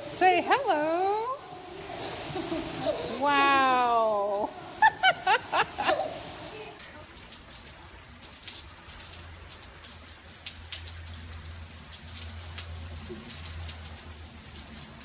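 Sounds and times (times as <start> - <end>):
rain on flagstones and gravel: 4.8 - 15.0
drops ticking: 6.8 - 15.0.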